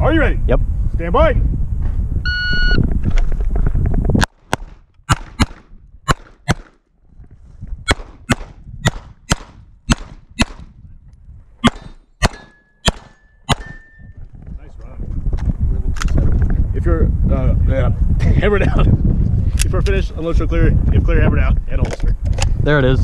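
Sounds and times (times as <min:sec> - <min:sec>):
rapid pistol fire: 0:04.5 - 0:06.8, 0:07.9 - 0:10.7, 0:11.6 - 0:13.7.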